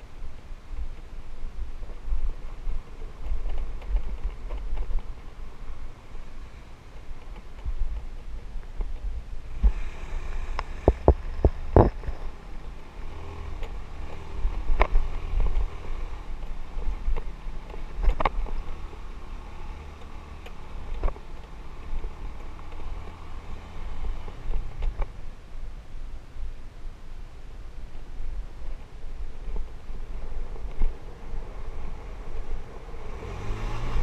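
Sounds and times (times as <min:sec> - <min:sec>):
knocks and rattles over bumps: 0:00.0 - 0:09.8, 0:10.6 - 0:25.3
motorbike engine rumble: 0:00.0 - 0:34.0.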